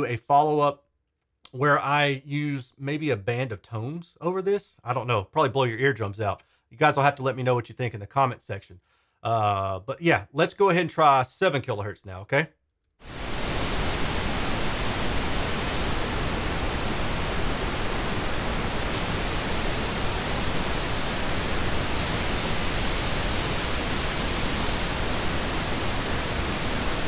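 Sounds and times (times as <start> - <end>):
pink noise: 13.0 - 27.0.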